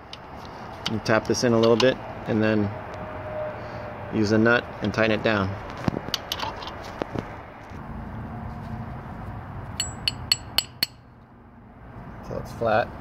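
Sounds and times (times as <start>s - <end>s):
hammer tapping metal pin: 9.8s - 11.0s.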